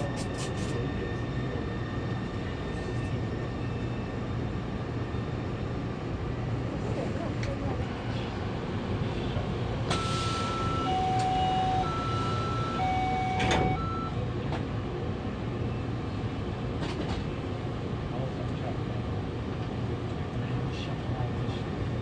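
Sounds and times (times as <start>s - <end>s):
low hum of stopped train: 0.0s - 22.0s
high and low warning beeps: 9.9s - 14.2s
train doors shutting thud: 13.2s - 13.9s.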